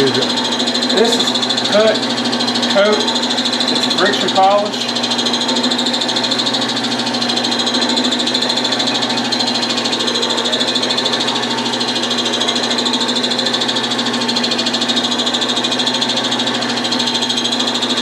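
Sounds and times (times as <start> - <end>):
wood lathe humming: 0.0 - 18.0.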